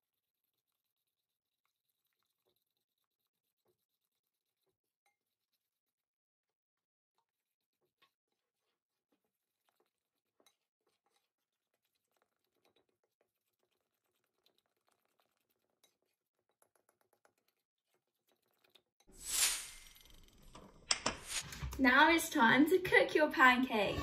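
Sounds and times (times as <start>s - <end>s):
utensil scraping a bowl: 7.3s - 21.8s.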